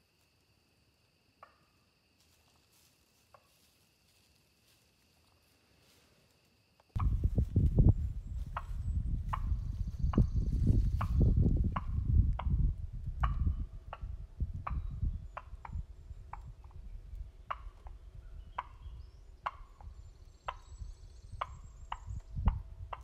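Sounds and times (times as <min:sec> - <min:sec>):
turkey clucking: 0:17.5 - 0:20.7.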